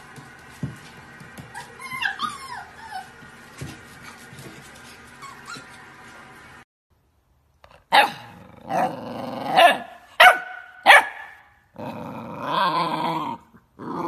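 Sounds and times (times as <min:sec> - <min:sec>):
puppy barking: 0:07.9 - 0:08.8, 0:09.5 - 0:11.5
puppy growling: 0:08.0 - 0:10.0, 0:11.7 - 0:14.0.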